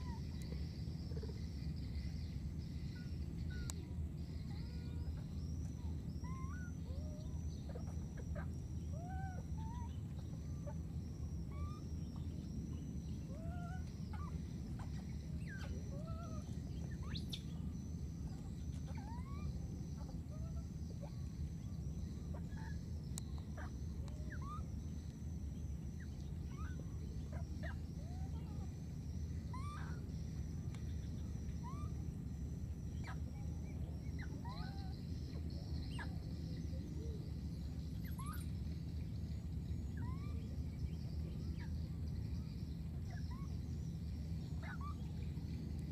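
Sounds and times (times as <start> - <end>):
high chirping animal calls: 0.0 - 38.7, 39.8 - 45.4
constant low rumble: 0.0 - 45.9.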